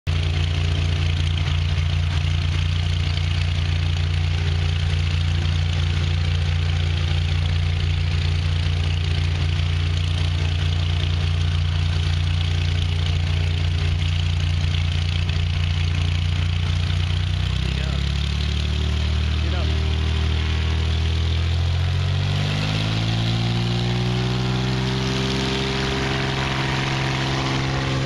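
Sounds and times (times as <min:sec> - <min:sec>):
light aircraft engine droning: 0:00.1 - 0:28.0.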